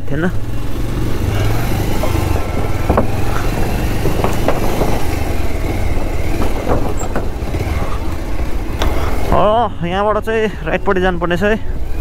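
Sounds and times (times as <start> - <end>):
motorcycle engine running: 0.0 - 12.0
wooden boards knocking: 1.8 - 8.3.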